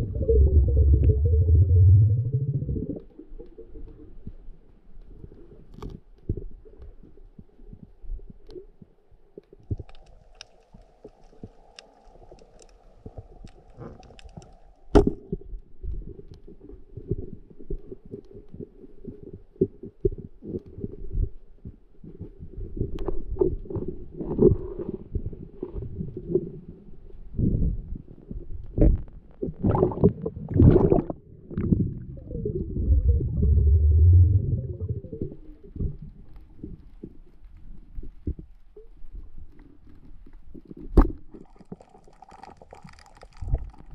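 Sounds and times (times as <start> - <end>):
water rushes: 0.0 - 3.3, 29.7 - 35.8
faint steady hum: 0.0 - 4.4, 29.6 - 37.0
muffled underwater rumbling: 0.0 - 5.5, 22.4 - 37.4.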